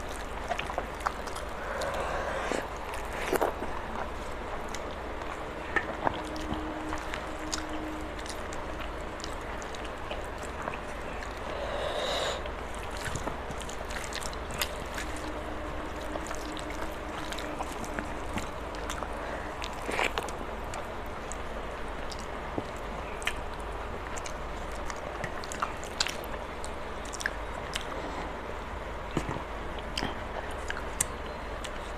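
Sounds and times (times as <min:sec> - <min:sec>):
mouth chewing: 0:00.0 - 0:21.4.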